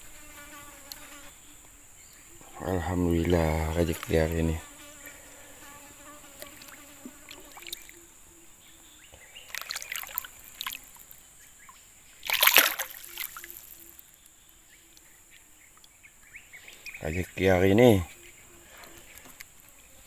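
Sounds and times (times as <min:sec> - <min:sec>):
fish splashing at water surface: 0:07.3 - 0:08.0, 0:09.5 - 0:11.2, 0:12.2 - 0:14.0.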